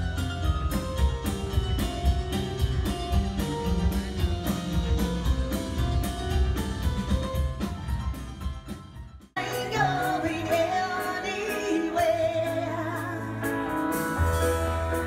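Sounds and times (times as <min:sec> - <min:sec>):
steady drum beat: 0:00.0 - 0:09.4.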